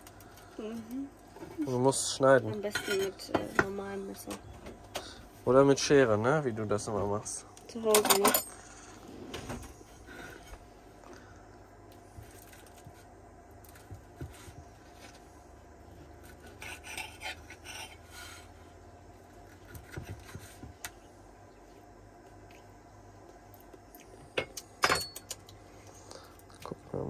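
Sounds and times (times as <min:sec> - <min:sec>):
knife sawing through crispy crust: 0:16.2 - 0:18.6.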